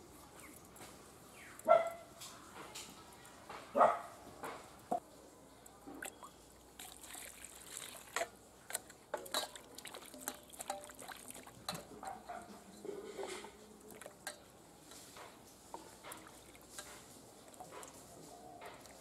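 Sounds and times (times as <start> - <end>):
potatoes splashing in bowl of water: 6.0 - 12.0.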